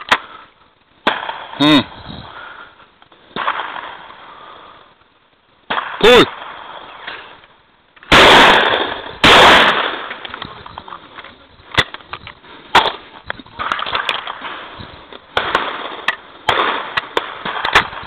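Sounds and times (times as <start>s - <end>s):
shotgun shot echo: 1.0s - 1.9s, 5.7s - 7.4s, 8.1s - 10.2s.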